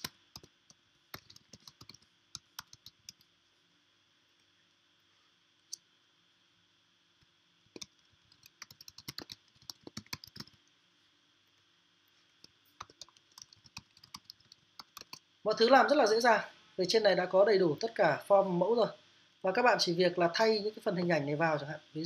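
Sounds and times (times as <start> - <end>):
computer keyboard typing: 0.0 - 0.5, 1.1 - 3.3, 7.7 - 10.6, 12.7 - 15.2.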